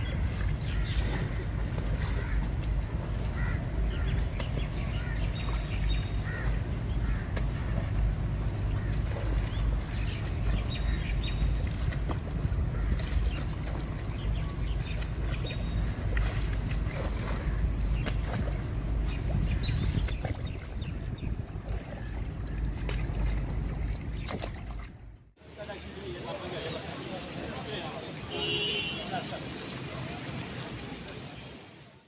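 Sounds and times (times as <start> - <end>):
broom splashing in floodwater: 0.0 - 20.8, 21.5 - 25.0
wind rumble on microphone: 0.0 - 25.2.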